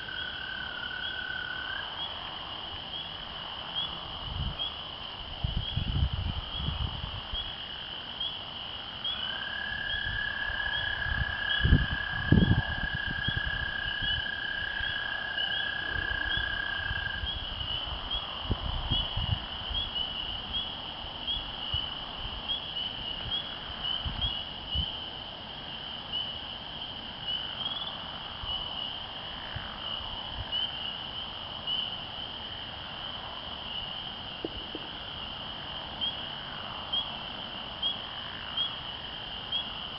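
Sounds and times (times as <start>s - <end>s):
frogs peeping chorus: 0.0s - 39.9s
toad trilling: 9.1s - 25.0s.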